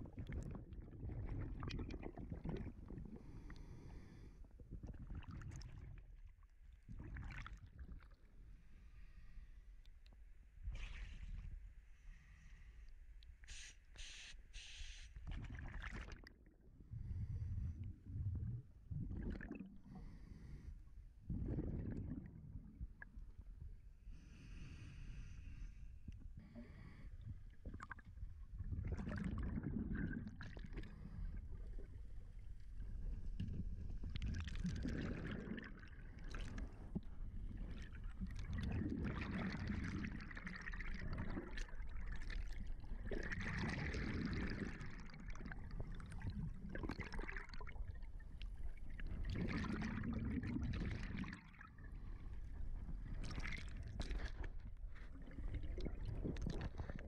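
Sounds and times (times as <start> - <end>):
exhaled bubbles gurgling: 0.0 - 8.2, 15.2 - 23.6, 26.2 - 57.0
low underwater rumble: 15.2 - 57.0.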